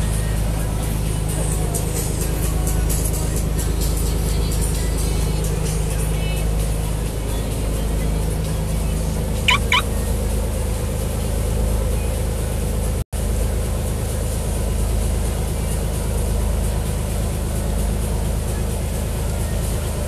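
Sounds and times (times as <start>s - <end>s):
boat engine running: 0.0s - 20.0s
churning wake rushing: 0.0s - 20.0s
short high chirps: 9.5s - 10.0s.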